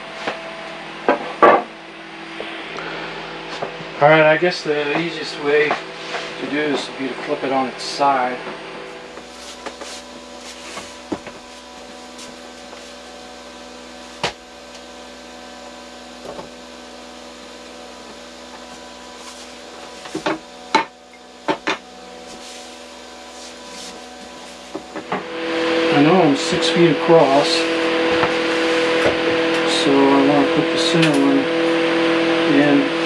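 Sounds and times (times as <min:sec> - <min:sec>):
steady background hum: 0:00.0 - 0:33.0
wooden boards knocking on shelf: 0:01.1 - 0:01.7.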